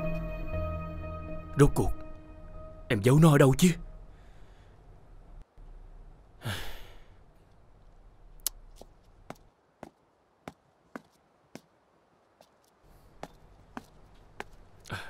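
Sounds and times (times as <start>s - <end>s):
person sighing: 6.4s - 7.2s.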